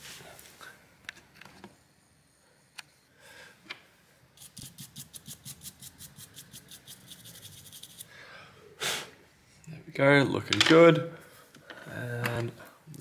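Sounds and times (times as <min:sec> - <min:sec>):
toothbrush scrubbing chip: 0:04.4 - 0:08.1.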